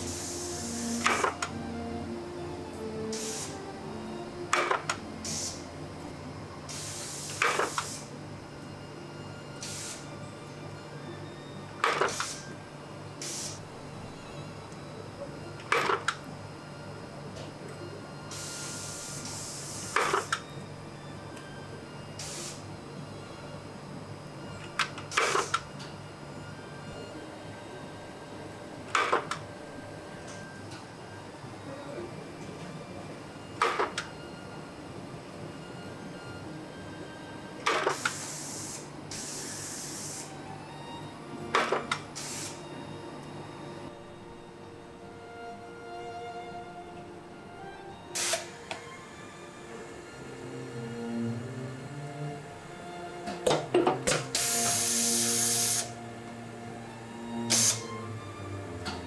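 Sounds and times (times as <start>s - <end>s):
hiss: 0.0s - 1.2s, 3.1s - 3.6s, 5.2s - 5.7s, 6.7s - 8.1s, 9.6s - 10.0s, 12.0s - 12.4s, 13.2s - 13.6s, 18.4s - 20.3s, 22.2s - 22.6s, 37.9s - 40.3s, 42.2s - 42.6s, 48.2s - 48.5s, 54.4s - 55.9s, 57.5s - 57.9s
low machine hum: 0.0s - 7.4s, 8.0s - 59.0s.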